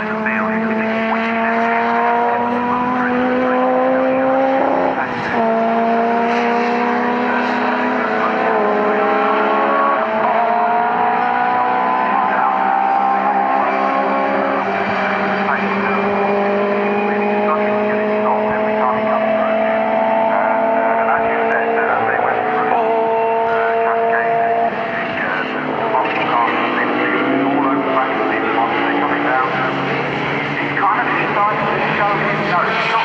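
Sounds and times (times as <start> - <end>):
racing car engines at full throttle: 0.0 - 33.0.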